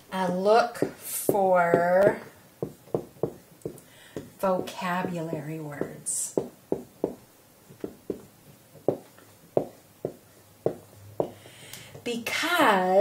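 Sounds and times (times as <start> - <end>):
pen tapping on hard surface: 1.7 - 7.2, 7.8 - 11.4.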